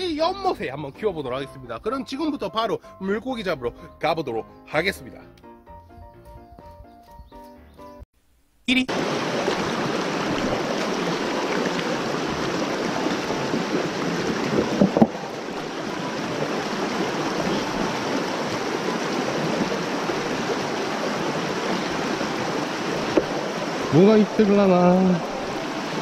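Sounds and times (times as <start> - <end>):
stream rushing over rocks: 8.9 - 26.0
knock: 14.6 - 15.2.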